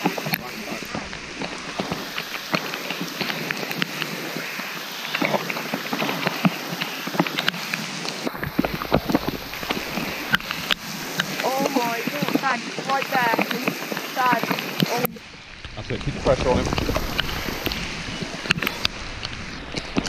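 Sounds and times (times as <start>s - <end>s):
heavy rain on water and leaves: 0.0s - 20.0s.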